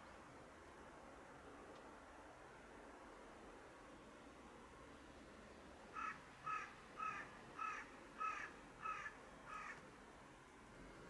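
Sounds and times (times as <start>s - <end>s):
crow cawing: 5.9s - 9.8s.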